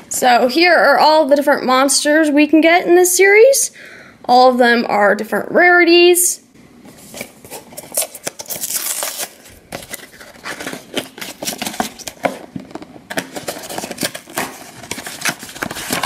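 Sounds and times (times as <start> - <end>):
cardboard box being torn open: 7.8 - 12.4.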